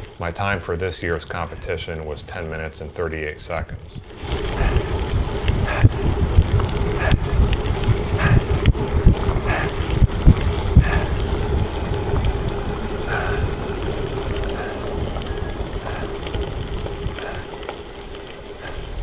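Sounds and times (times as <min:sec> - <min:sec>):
crackles of bicycle ride: 0:00.0 - 0:19.0
wind buffeting microphone: 0:03.5 - 0:19.0
steady hum: 0:04.0 - 0:19.0.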